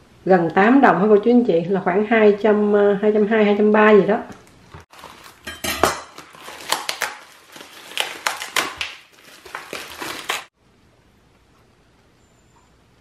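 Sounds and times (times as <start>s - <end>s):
plastic packaging crinkling: 4.9s - 10.6s.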